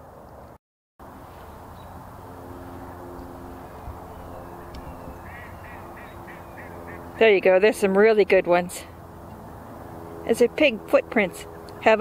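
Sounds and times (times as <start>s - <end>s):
steady background noise: 0.0s - 12.0s
ducks quacking in distance: 5.0s - 7.2s.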